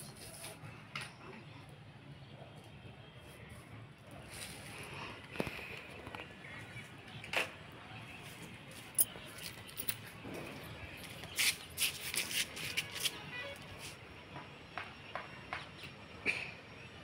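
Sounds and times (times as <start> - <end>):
handling clicks and rustles: 8.7 - 10.4.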